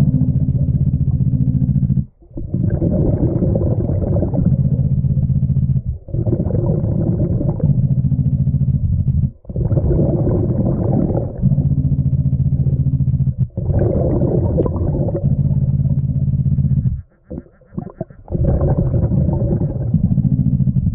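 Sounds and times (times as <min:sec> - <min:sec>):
bubbling exhale: 0:02.3 - 0:04.8, 0:05.9 - 0:07.8, 0:09.4 - 0:11.9, 0:13.4 - 0:16.0, 0:16.7 - 0:20.9.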